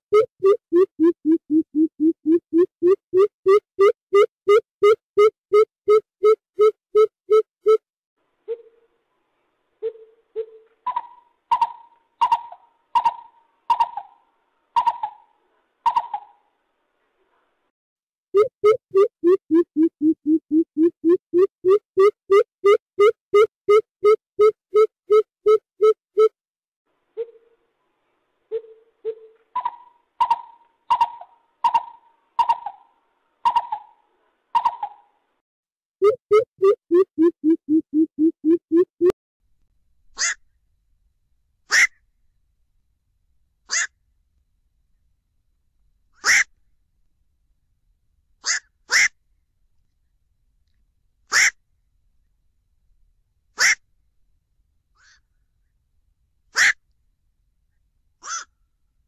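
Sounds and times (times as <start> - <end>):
animal calling hollow notes: 0.1 - 7.8, 18.4 - 26.3, 36.0 - 39.1
harsh high bird calls: 58.2 - 58.5.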